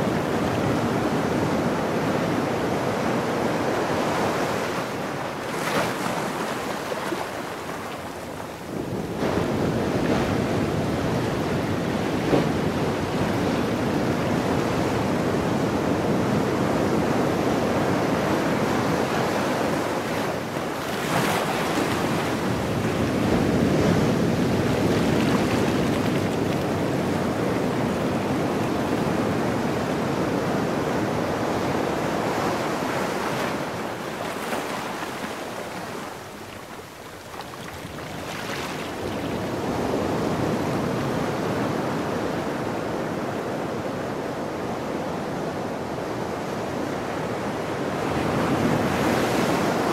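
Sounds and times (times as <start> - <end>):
ocean surf breaking: 0.0 - 36.6.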